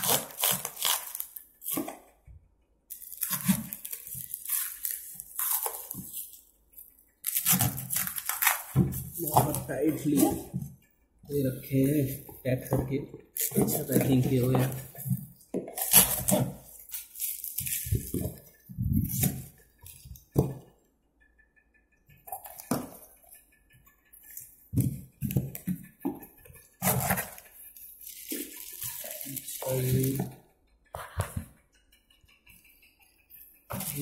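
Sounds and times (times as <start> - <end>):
cardboard and plastic wrap rustling: 0.0 - 2.1, 2.9 - 6.4, 7.2 - 10.7, 11.3 - 20.6, 24.3 - 30.4, 33.7 - 34.0.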